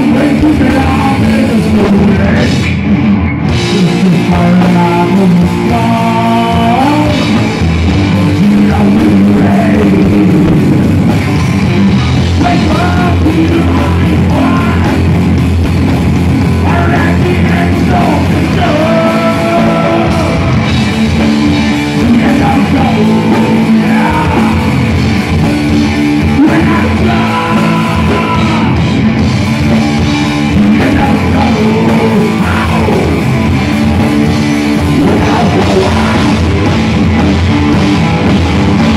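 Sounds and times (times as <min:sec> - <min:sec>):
rock band playing live: 0:00.0 - 0:38.9.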